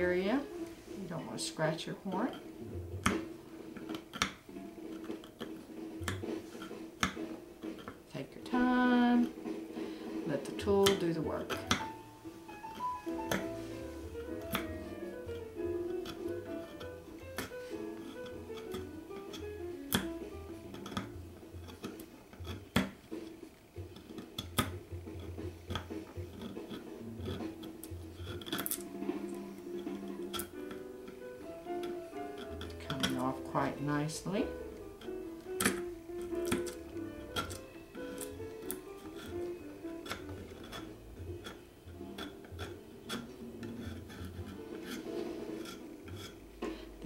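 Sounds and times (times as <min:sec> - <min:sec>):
scraper cutting cork: 0:23.9 - 0:30.8, 0:35.0 - 0:46.4
scraper shaving cork clicks: 0:25.7 - 0:28.8.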